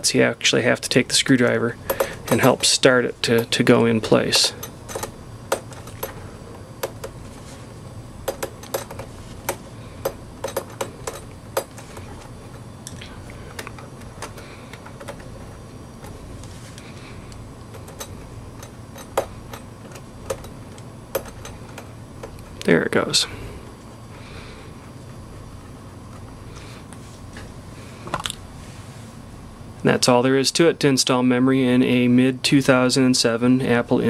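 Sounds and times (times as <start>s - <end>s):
screwdriver tapping metal plate: 1.9s - 3.6s, 4.3s - 6.2s, 8.2s - 11.9s, 17.8s - 22.4s.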